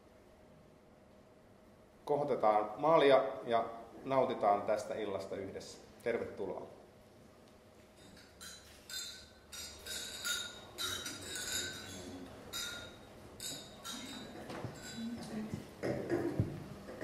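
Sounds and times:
glasses clinking: 8.0 - 16.4.

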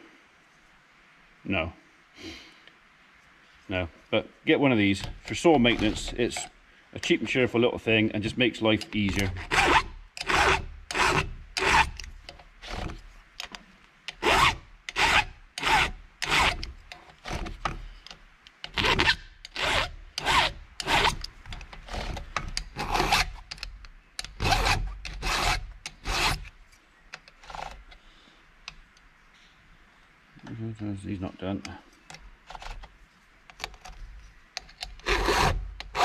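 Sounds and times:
file rasping on chainsaw chain: 5.0 - 6.5, 8.8 - 13.0, 14.1 - 17.6, 18.7 - 23.5, 24.2 - 26.5, 35.0 - 36.0.

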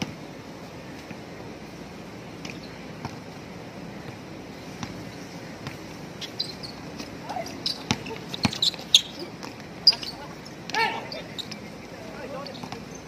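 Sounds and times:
sneakers squeaking: 4.0 - 13.0
basketball bouncing: 7.7 - 8.7.

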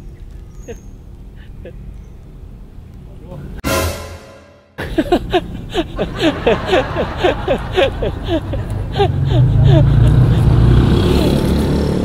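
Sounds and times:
motorbikes passing: 5.2 - 12.0.

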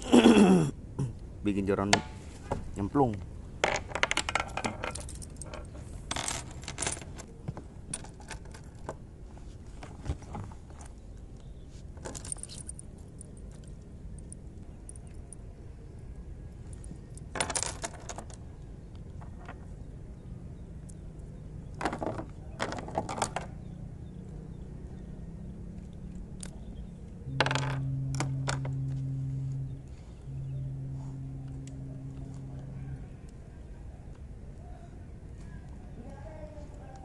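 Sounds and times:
low steady hum: 0.0 - 37.0
light metallic clinking: 12.0 - 15.5.

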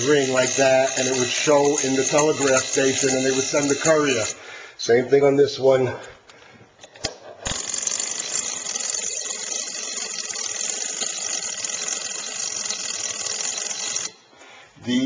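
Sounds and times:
mechanical bell ringing and rattling: 0.0 - 4.4, 7.5 - 14.2.

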